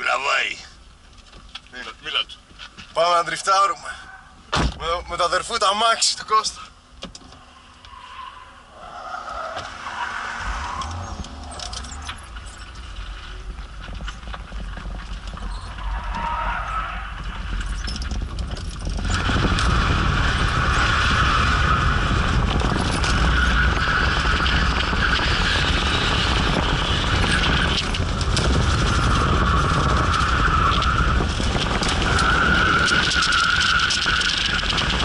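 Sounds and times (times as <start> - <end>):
car engine under load: 0.0 - 35.0
tyres squealing: 7.4 - 22.1, 22.7 - 35.0.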